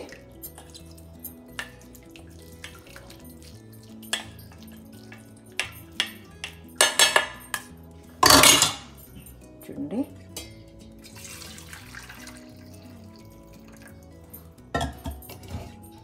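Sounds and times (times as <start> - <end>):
spoon clinking on metal: 0.0 - 9.5, 10.3 - 16.0
soft background music: 0.0 - 16.0.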